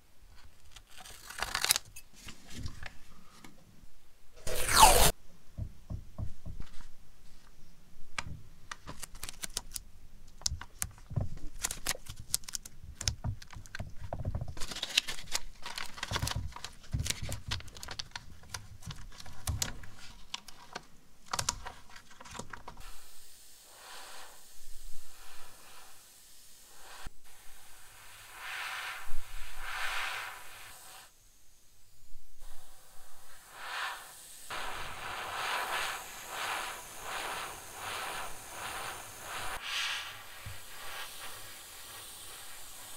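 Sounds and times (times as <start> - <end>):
paper and tape crinkling: 0.4 - 2.7, 8.8 - 9.8, 10.4 - 22.8
airbrush spraying hiss: 4.4 - 5.2, 22.8 - 42.9.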